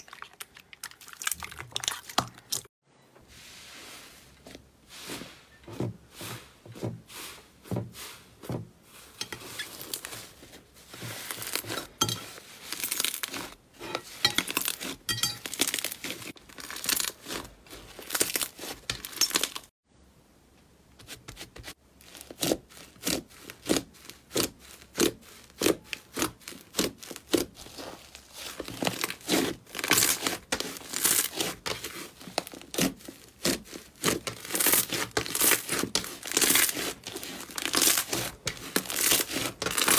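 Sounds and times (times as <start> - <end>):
slime crackling and popping: 12.7 - 13.6, 14.4 - 19.7, 22.0 - 39.9.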